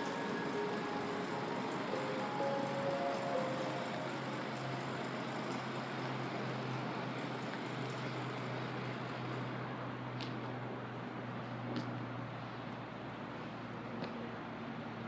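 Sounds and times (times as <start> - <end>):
low engine drone: 0.0 - 10.1
outdoor noise: 0.0 - 15.0.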